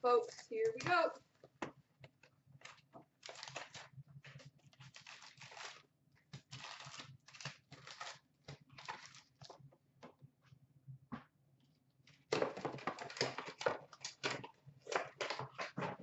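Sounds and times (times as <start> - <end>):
foil packs crinkling: 2.6 - 9.6, 12.4 - 16.0.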